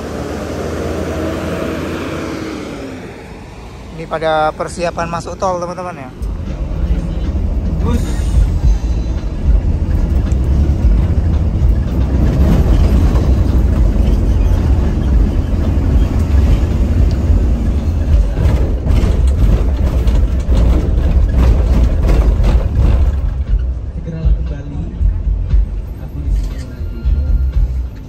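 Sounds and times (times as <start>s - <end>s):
diesel bus engine rumbling: 0.0s - 28.0s
clicks and rattles: 18.0s - 23.7s.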